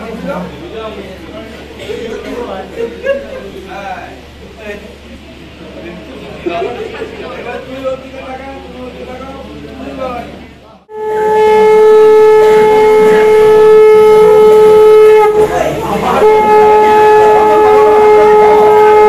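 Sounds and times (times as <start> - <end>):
conch shell blown: 10.9 - 19.0.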